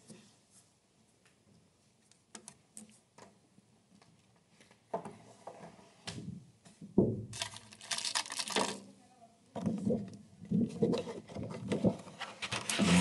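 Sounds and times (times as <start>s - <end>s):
rustling: 7.4s - 8.9s.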